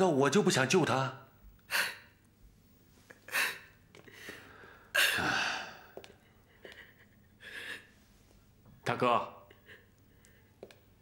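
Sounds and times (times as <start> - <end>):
woman sobbing: 3.2 - 3.8, 6.4 - 7.9.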